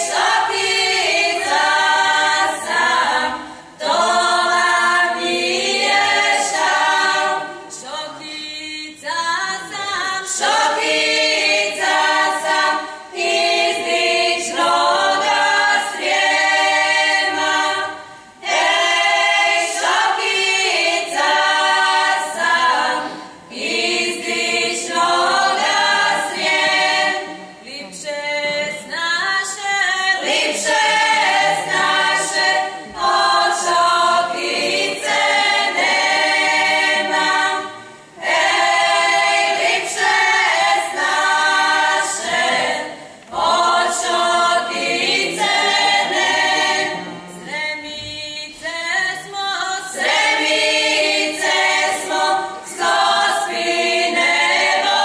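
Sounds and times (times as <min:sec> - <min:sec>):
women singing a cappella: 0:00.0 - 0:55.0.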